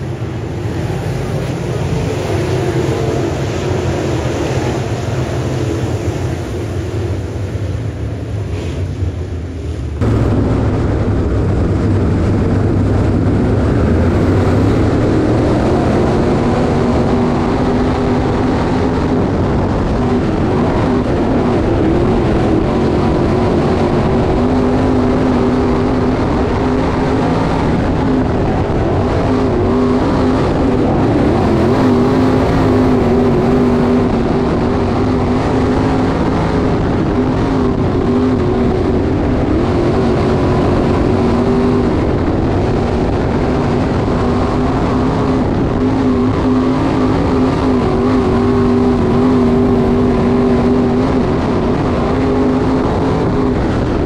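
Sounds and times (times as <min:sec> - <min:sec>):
race car engines at speed: 0:00.0 - 0:54.0.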